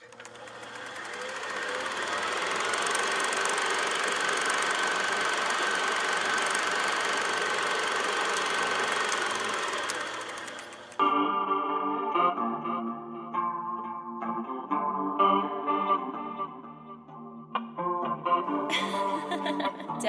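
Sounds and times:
drone propellers whirring: 0.0s - 11.0s.

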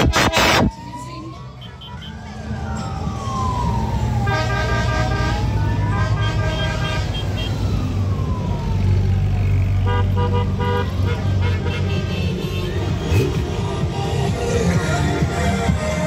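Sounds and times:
wailing siren: 0.0s - 11.4s
motorcycle engines rumbling: 0.0s - 16.0s
horns tooting: 1.5s - 2.3s, 4.2s - 7.6s, 9.4s - 15.6s.

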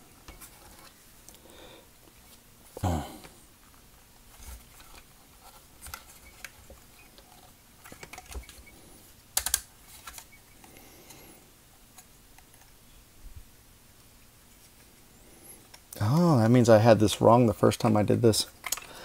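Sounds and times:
plastic toy parts clicking: 9.4s - 10.3s, 18.6s - 19.0s.

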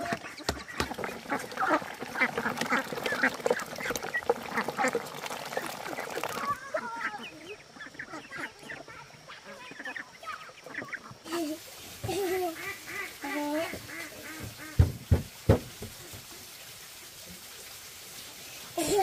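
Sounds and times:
duck bills clicking in feed: 0.0s - 6.7s, 13.9s - 14.9s
ducks quacking: 0.0s - 11.4s, 12.3s - 14.9s.

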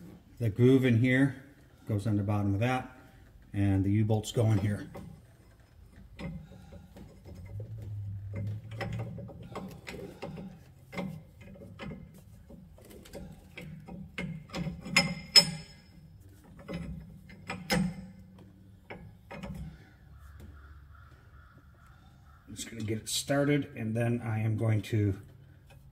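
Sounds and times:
metal bolts clinking and knocking: 4.2s - 19.9s.

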